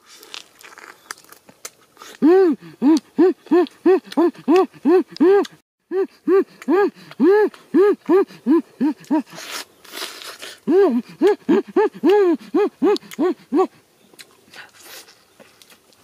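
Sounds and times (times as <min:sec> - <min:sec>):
crunching bites: 0:00.0 - 0:02.2
man humming with relish: 0:02.2 - 0:09.4, 0:10.6 - 0:13.8.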